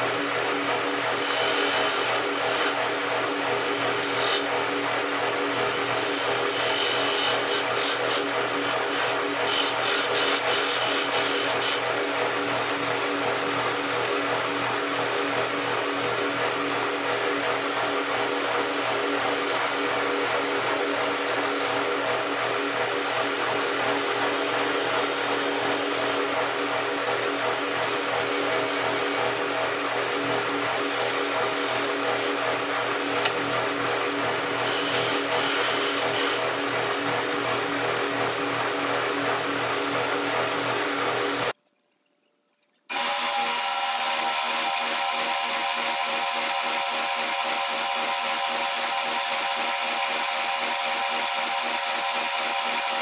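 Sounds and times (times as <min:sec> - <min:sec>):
lathe motor humming: 0:00.0 - 0:41.5
hand tool scraping workpiece: 0:05.9 - 0:12.0, 0:23.4 - 0:29.3, 0:30.7 - 0:33.4.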